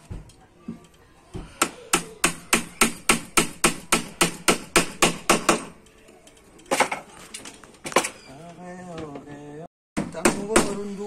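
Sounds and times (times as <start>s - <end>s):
hammer striking wooden plank: 1.6s - 5.7s, 10.0s - 10.8s.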